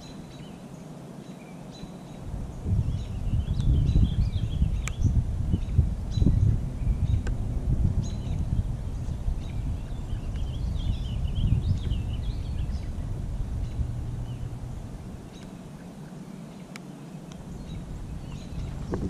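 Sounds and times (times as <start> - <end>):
low rumble: 2.3 - 15.7, 17.4 - 19.0
small bird twittering: 15.2 - 19.0.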